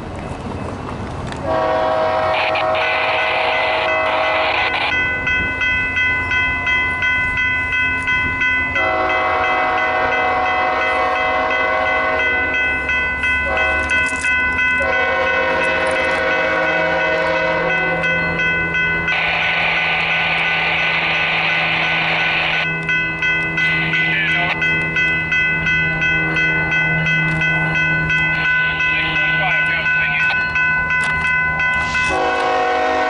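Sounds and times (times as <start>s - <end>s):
locomotive air horn blasts: 1.4s - 4.8s, 8.8s - 12.4s, 13.4s - 13.9s, 14.8s - 18.0s, 31.8s - 33.0s
crossing warning bells ringing: 1.4s - 33.0s.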